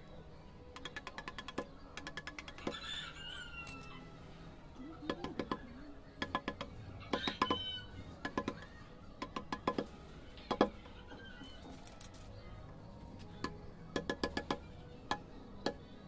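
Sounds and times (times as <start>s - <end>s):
hammer tapping steel chisel on stone: 0.8s - 2.7s, 5.1s - 5.6s, 6.2s - 7.6s, 8.2s - 9.9s, 13.4s - 15.8s.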